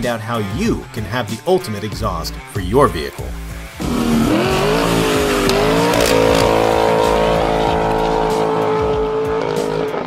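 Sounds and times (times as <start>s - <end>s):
car engine revving: 3.5s - 10.0s.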